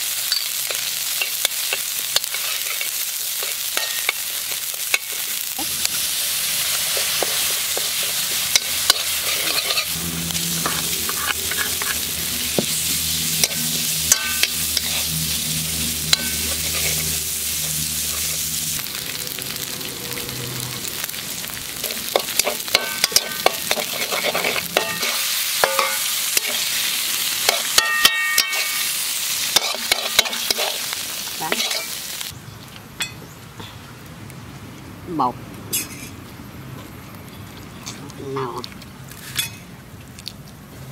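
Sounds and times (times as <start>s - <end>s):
spice paste sizzling in a wok: 0.0s - 32.4s
metal spatula scraping a pan: 6.6s - 18.5s, 21.8s - 32.0s
low hum: 8.3s - 26.6s.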